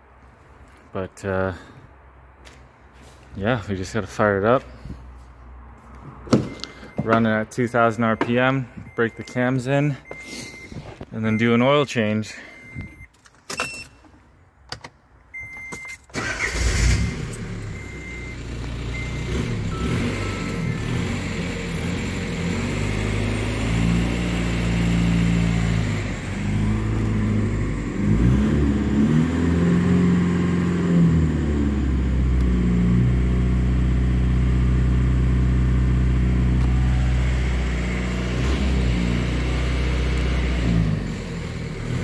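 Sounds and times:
diesel engine revving: 16.2 - 42.0.

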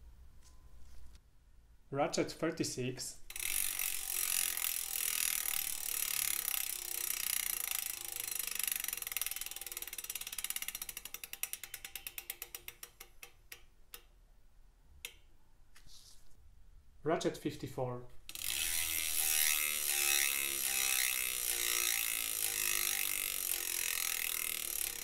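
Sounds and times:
bicycle freehub clicking: 3.3 - 14.2, 15.0 - 15.2, 18.2 - 25.0.

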